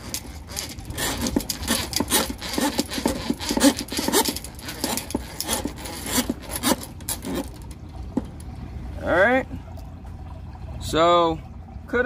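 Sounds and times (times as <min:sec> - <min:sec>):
drain snake cable scraping in pipe: 0:00.0 - 0:08.3.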